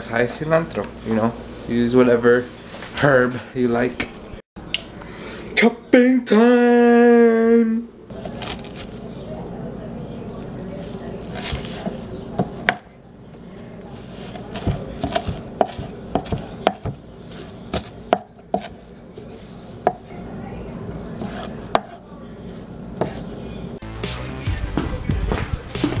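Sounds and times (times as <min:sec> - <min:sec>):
knife chopping on cutting board: 0:14.5 - 0:17.0, 0:17.7 - 0:18.8.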